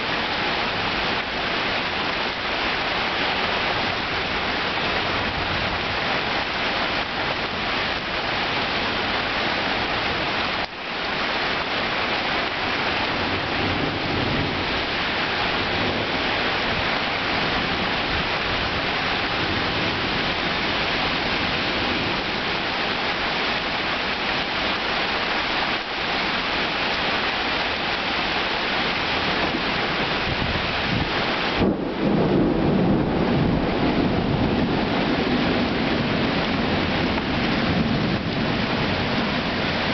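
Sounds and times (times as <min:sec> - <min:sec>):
heavy rain pouring: 0:00.0 - 0:39.9
thunder rumbling: 0:28.8 - 0:39.9.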